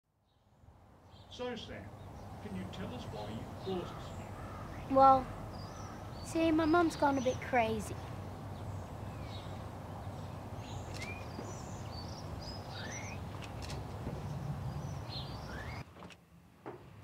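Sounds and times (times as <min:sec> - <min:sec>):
low background noise: 0:00.1 - 0:17.0
birds chirping: 0:00.2 - 0:15.9
faint clicks: 0:10.8 - 0:11.5, 0:13.4 - 0:13.9.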